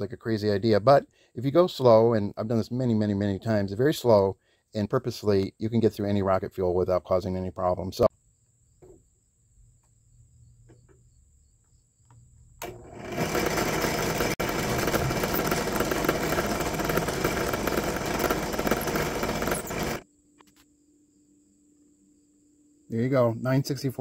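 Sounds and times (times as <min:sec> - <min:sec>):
drill press motor running: 0:12.6 - 0:20.0.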